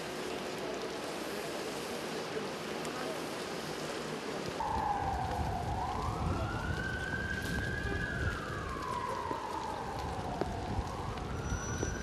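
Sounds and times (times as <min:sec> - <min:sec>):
steady rain: 0:00.0 - 0:12.0
low traffic rumble: 0:00.1 - 0:12.0
siren wailing: 0:04.6 - 0:12.0.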